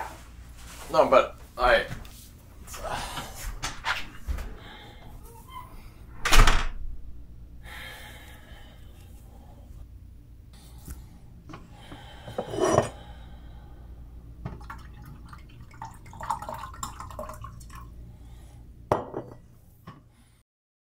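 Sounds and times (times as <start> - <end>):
steady low hum: 0.1 - 20.4
wine pouring into glass: 14.5 - 17.9.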